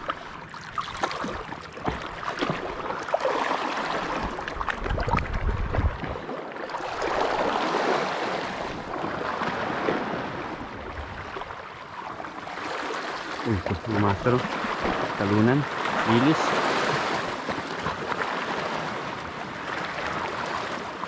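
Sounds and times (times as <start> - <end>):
small waves lapping over rocks: 0.0 - 21.0
wind on microphone: 4.0 - 11.7.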